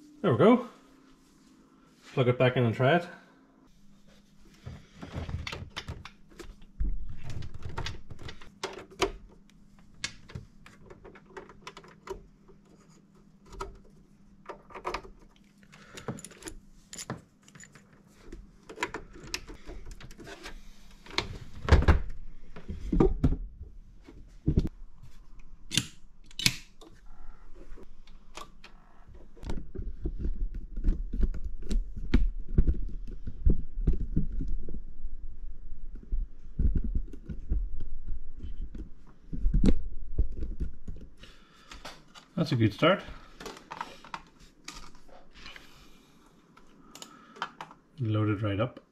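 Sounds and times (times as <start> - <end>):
cables and plugs clicking and rattling: 4.7 - 23.1, 43.3 - 45.7, 46.5 - 48.1.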